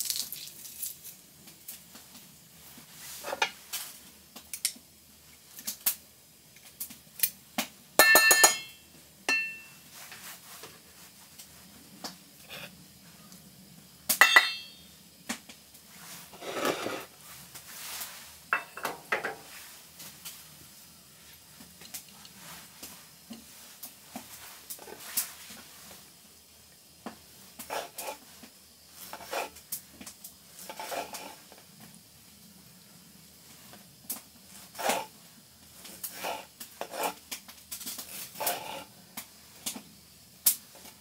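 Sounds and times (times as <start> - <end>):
dishes and utensils clinking: 8.0 - 9.8, 14.2 - 14.8, 18.5 - 19.4.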